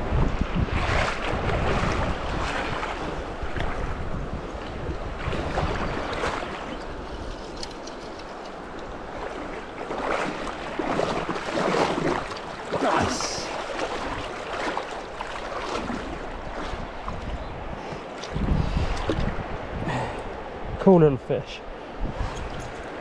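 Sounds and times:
shallow river water running: 0.0 - 23.0
fish splashing: 9.4 - 16.2.

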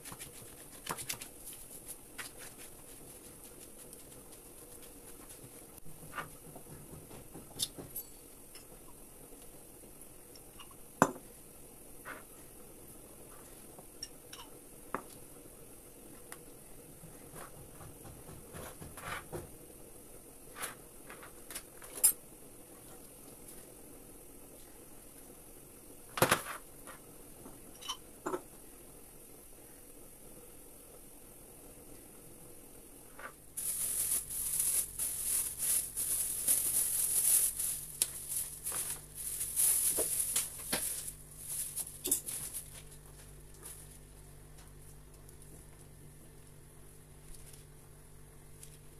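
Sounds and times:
cling film crinkling: 33.6 - 44.1.

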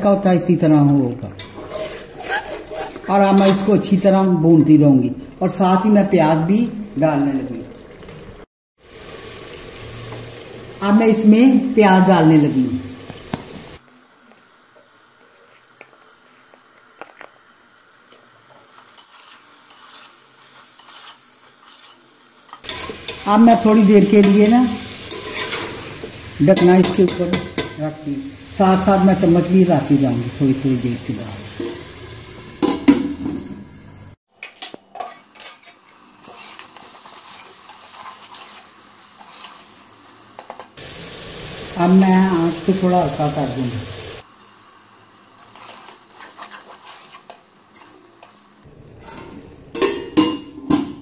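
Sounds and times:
faint sizzle: 0.0 - 34.2, 34.9 - 50.6
metal spoon scraping a pot: 1.4 - 3.7, 19.0 - 23.2, 25.0 - 26.0, 45.4 - 48.0.

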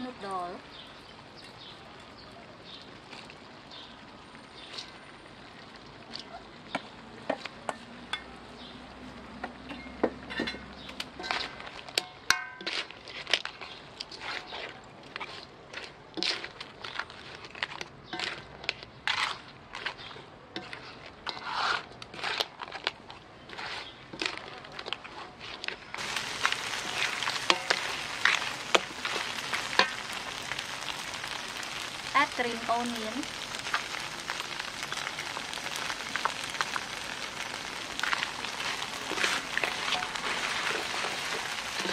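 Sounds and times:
frying sizzle: 0.0 - 22.5, 25.8 - 41.9
spatula scraping metal wok: 9.7 - 32.0, 36.2 - 41.9.

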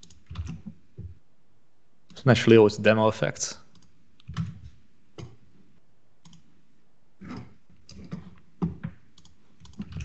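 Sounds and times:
mouse and keyboard clicks: 6.2 - 6.4, 7.2 - 10.0.

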